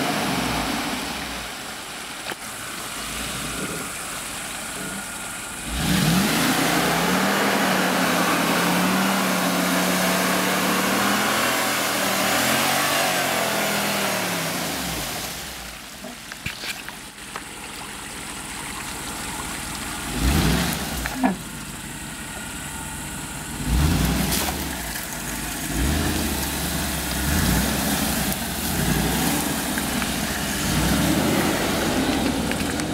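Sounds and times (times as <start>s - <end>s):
engine revving: 4.7s - 15.6s, 20.0s - 21.5s, 23.5s - 32.9s.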